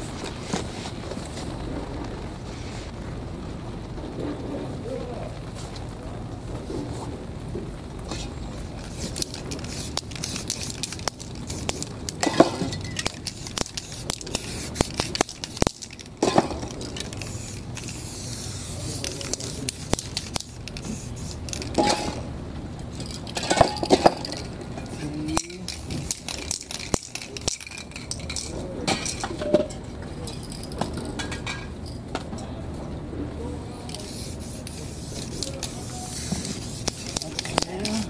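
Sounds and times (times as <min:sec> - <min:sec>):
cans and stencils clicking and rustling: 0:08.0 - 0:32.5, 0:33.7 - 0:38.0
spray paint cans hissing: 0:08.1 - 0:22.3, 0:25.4 - 0:29.2, 0:33.8 - 0:38.0.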